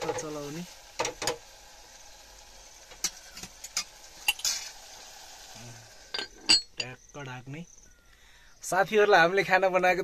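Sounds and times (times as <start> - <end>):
faint steady sizzle: 0.0 - 10.0.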